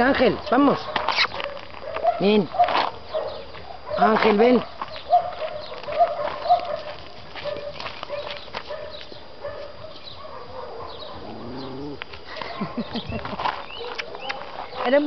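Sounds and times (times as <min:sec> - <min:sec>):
birds chirping: 0:02.4 - 0:03.8, 0:04.4 - 0:06.7, 0:07.6 - 0:15.0
dog whining: 0:11.1 - 0:12.0.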